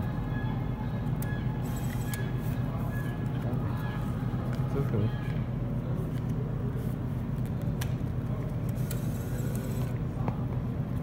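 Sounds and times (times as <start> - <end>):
bill acceptor motor whirring: 0.0 - 4.1, 8.6 - 10.0
steady low hum: 0.0 - 11.0.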